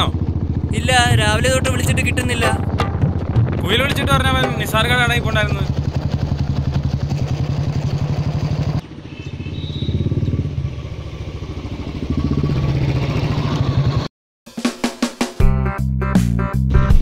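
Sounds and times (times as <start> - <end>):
motorcycle engine running: 0.0 - 14.1
music: 2.4 - 5.3, 14.5 - 17.0.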